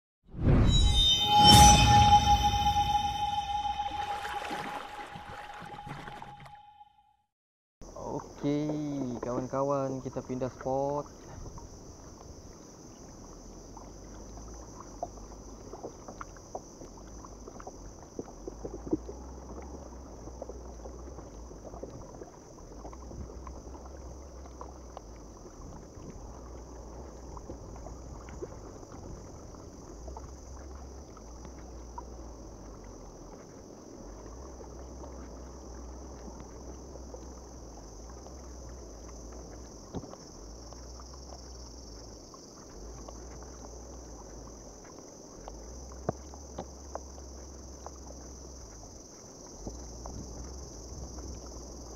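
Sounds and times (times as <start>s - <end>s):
water swishing and dripping: 0.4s - 6.7s, 13.8s - 51.9s
high insect drone: 0.7s - 6.5s, 33.0s - 51.9s
wind rumble on microphone: 48.6s - 51.9s.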